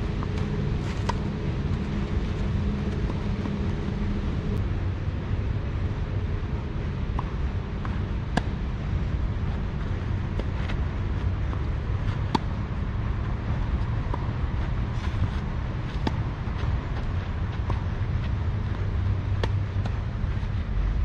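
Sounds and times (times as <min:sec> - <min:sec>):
low rumble: 0:00.0 - 0:21.0
racket striking tennis ball: 0:00.2 - 0:01.3, 0:08.3 - 0:08.6, 0:11.4 - 0:12.6, 0:15.0 - 0:16.7, 0:18.6 - 0:20.0
tennis ball bouncing: 0:00.2 - 0:01.8, 0:07.1 - 0:08.7, 0:09.5 - 0:20.4.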